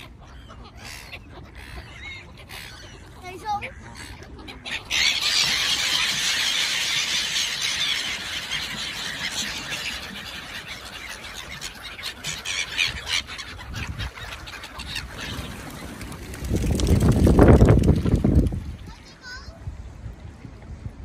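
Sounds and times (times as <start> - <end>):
gulls squealing and calling: 0.0 - 19.2
flapping wings: 15.1 - 18.8.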